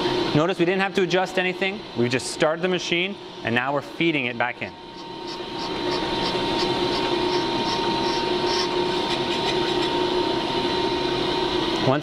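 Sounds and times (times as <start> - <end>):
lathe hum and whine: 0.0 - 12.0.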